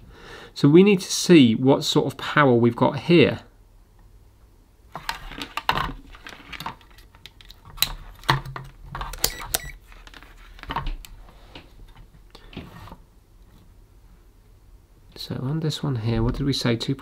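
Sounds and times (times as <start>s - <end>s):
circuit board clicks and rustles: 6.6s - 11.1s.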